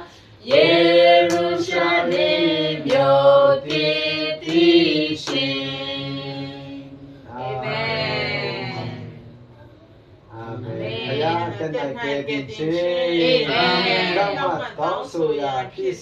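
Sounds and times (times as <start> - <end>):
group singing a hymn unaccompanied: 0.0 - 9.4, 10.3 - 11.8, 13.0 - 14.5.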